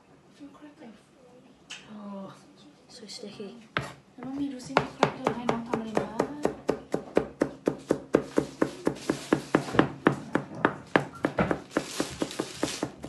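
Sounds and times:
knife chopping on plastic board: 0:03.8 - 0:13.0.

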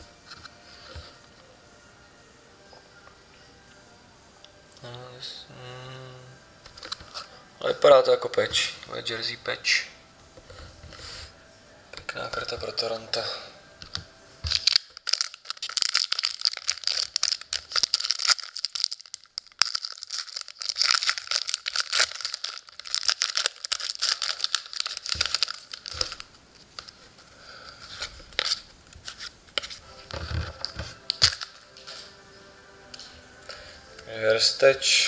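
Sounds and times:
cards rustling: 0:13.8 - 0:32.1
foil wrapper tearing and crinkling: 0:14.4 - 0:27.1, 0:27.8 - 0:32.0.

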